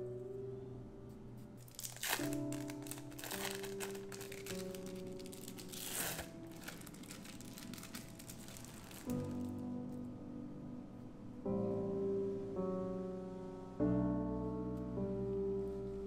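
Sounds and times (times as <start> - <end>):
soft piano music: 0.0 - 16.0
crinkling and rustling: 1.6 - 9.6.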